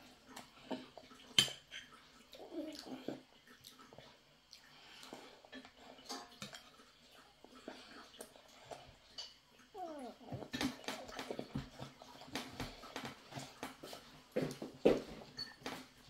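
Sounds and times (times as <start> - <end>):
cutlery clinking on ceramic plate: 15.3 - 15.8.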